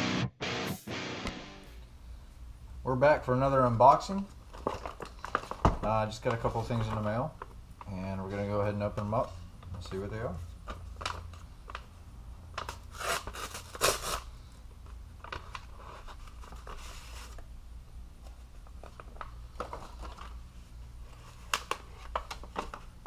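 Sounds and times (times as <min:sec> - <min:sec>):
foil package crinkling: 0:04.1 - 0:14.3, 0:14.9 - 0:17.4, 0:18.3 - 0:23.0.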